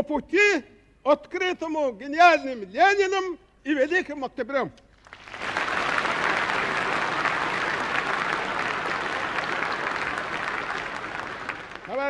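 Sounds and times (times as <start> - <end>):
large audience applauding: 5.0 - 12.0.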